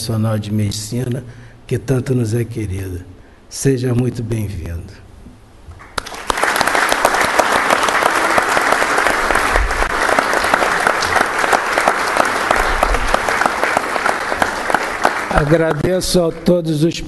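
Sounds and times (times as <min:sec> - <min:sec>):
audience applauding: 0:05.8 - 0:16.3.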